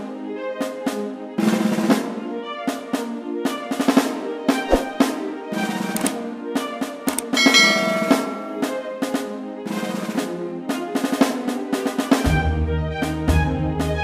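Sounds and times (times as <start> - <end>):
sustained instrumental tones: 7.2 - 8.9.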